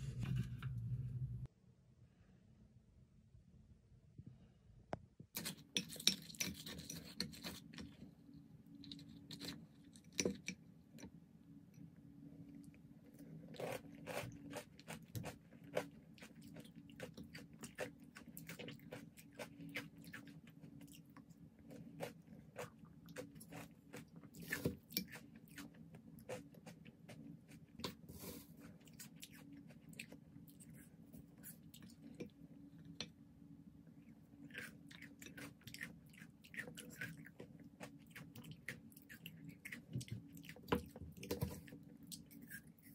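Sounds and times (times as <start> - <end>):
steady low hum: 0.0 - 5.7
crunchy chewing: 12.5 - 32.4, 34.3 - 42.9.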